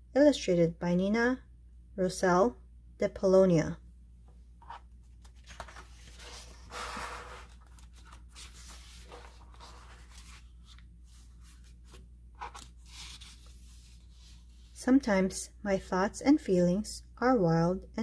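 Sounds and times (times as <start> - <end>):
page swish: 4.6 - 14.5
book pages turning: 4.6 - 14.8
soft rubs and taps of pages: 7.5 - 14.8.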